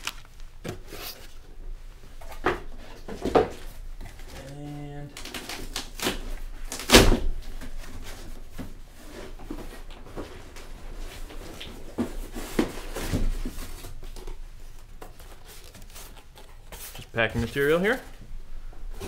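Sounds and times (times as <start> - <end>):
packing rustling: 0.0 - 1.4.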